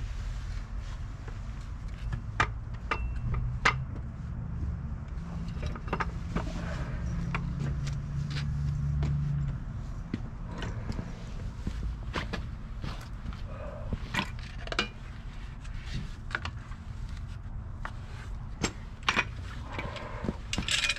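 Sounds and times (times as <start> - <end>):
steady low rumble: 0.0 - 20.9.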